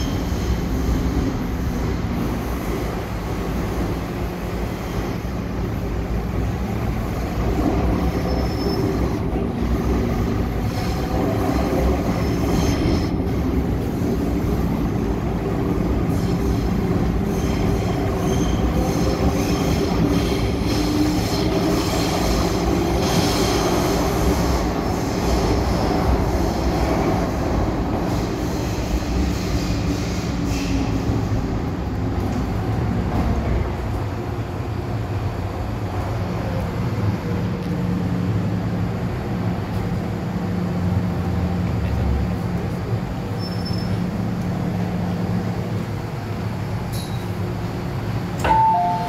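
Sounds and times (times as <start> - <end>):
train humming: 0.0 - 49.0
wheel and rail rumble: 0.0 - 49.0
two-tone door chime: 48.5 - 49.0.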